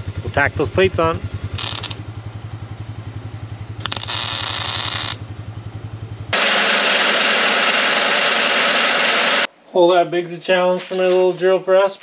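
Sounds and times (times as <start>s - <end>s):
low pulsing engine-like hum: 0.0s - 6.4s
welding sizzling crackle: 1.6s - 2.0s, 3.8s - 5.2s
drill press boring into steel: 6.4s - 9.5s.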